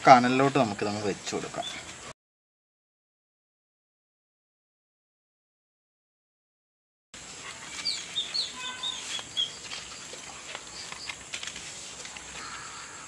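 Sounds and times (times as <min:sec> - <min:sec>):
small birds chirping: 0:00.3 - 0:02.1, 0:07.4 - 0:13.0
faint ticks and crackles: 0:07.4 - 0:12.7.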